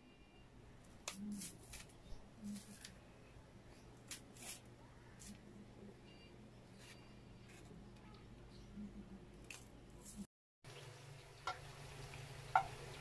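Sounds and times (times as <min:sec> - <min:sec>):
banana skins tearing: 0:01.0 - 0:03.0, 0:04.0 - 0:05.4.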